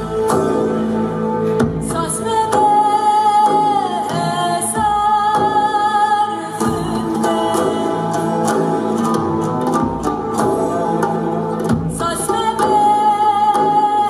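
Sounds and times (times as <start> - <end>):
instrumental accompaniment: 0.0 - 14.0.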